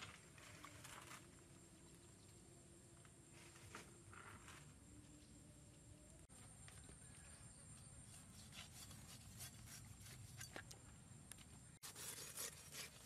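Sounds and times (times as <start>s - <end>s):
knife scraping through meat: 8.1s - 10.5s, 11.8s - 13.0s.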